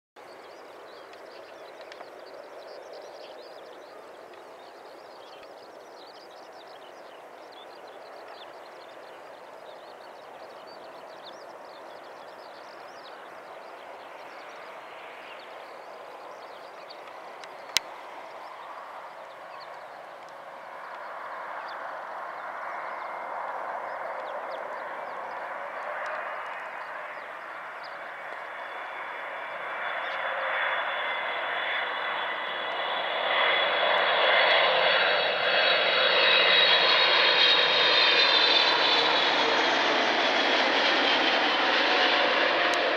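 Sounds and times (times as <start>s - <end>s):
jet airplane rushing: 0.2s - 42.9s
high jet whine: 10.9s - 42.9s.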